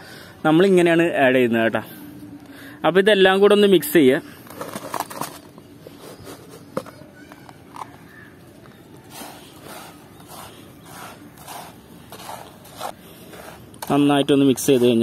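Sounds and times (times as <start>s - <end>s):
soft rasping strokes: 9.0s - 13.9s
hand scraping gritty mix in tray: 9.0s - 15.0s.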